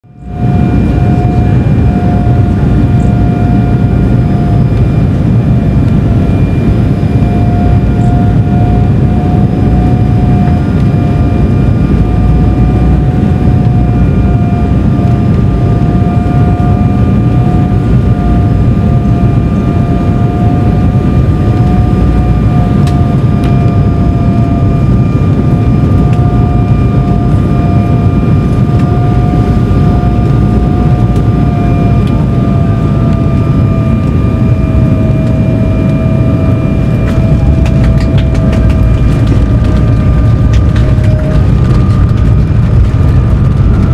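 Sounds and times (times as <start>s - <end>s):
jet engines and airflow rumble: 0.0s - 43.9s
wavering whine: 0.0s - 43.9s.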